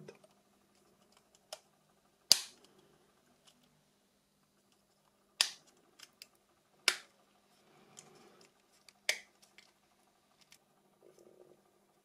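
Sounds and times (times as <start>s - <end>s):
plastic parts clicking: 4.6s - 7.1s.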